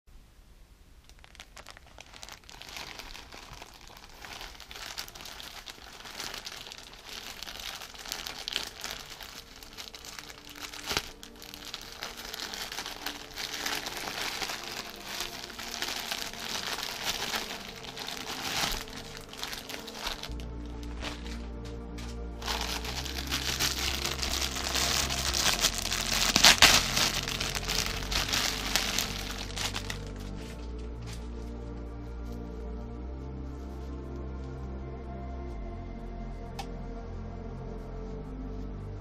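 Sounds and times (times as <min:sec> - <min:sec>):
plastic packaging crinkling: 0:01.0 - 0:31.3
plastic mailer tearing: 0:01.1 - 0:21.4, 0:22.4 - 0:30.2.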